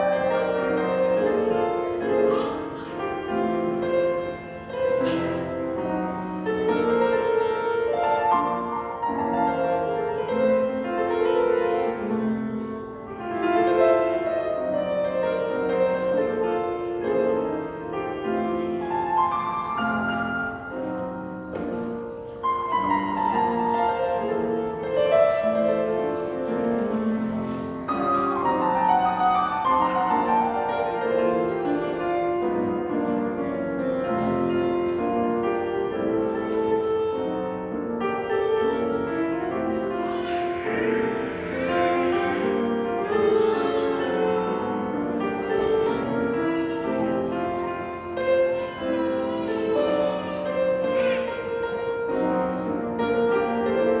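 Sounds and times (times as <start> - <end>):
solo piano piece: 0.0 - 54.0.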